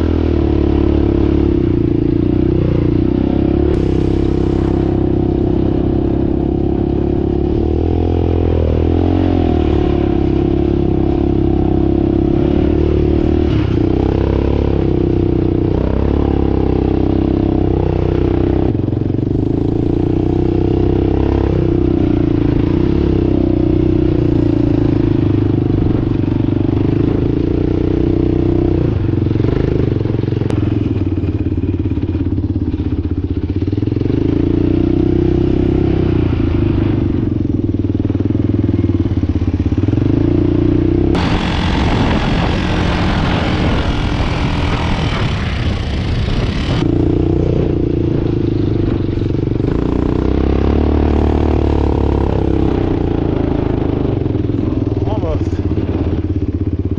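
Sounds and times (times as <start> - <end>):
off-road vehicle engine running: 0.0 - 56.9
loud rushing noise: 3.7 - 6.7, 41.1 - 50.0.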